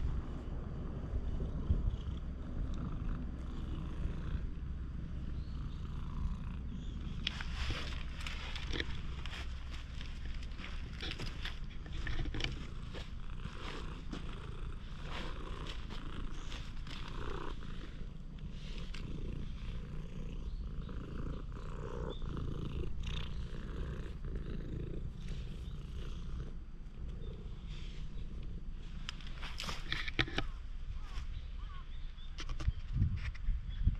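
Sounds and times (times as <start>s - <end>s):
cat purring: 0.0s - 30.4s
light clicks and rustles: 7.2s - 14.4s, 28.9s - 31.3s.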